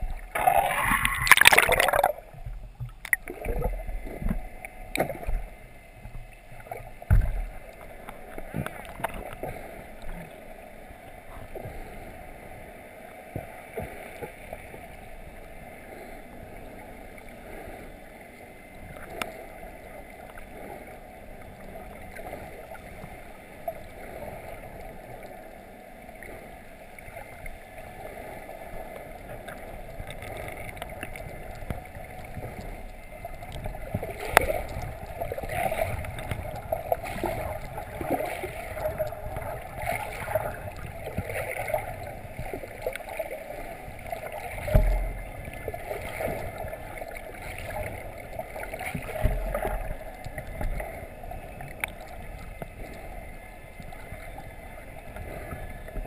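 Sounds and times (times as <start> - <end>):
water sloshing and splashing: 0.0 - 12.0, 26.1 - 56.0
muffled underwater noise: 0.0 - 56.0.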